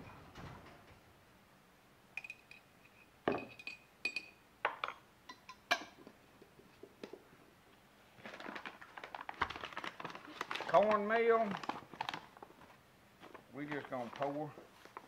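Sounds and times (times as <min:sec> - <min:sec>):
metal spoon clinking on glass: 0:02.2 - 0:04.4.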